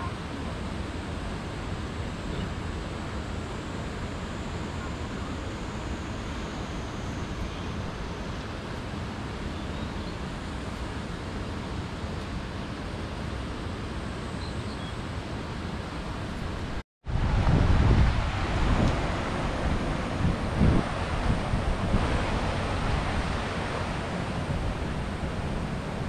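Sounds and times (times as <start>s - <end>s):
mountain stream rushing: 15.6s - 26.0s.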